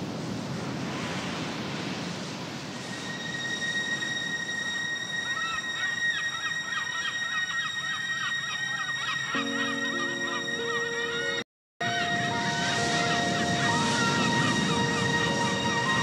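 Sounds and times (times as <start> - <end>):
ocean surf: 0.0 - 16.0
high steady tone: 2.8 - 16.0
honking bird calls: 5.3 - 16.0.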